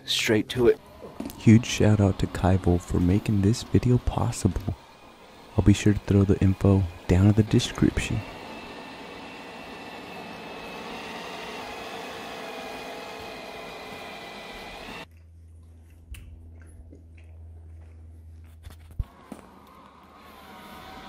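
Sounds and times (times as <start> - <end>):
robot vacuum whirring: 0.5 - 15.1, 19.0 - 21.0.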